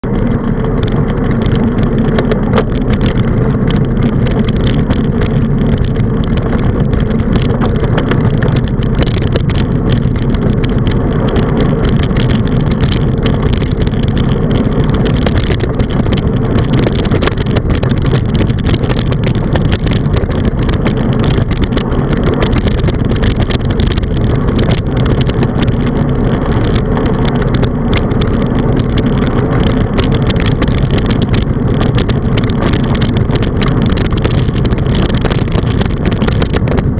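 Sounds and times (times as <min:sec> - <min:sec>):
tyre noise on asphalt: 0:00.0 - 0:36.9
wind buffeting microphone: 0:00.0 - 0:36.9.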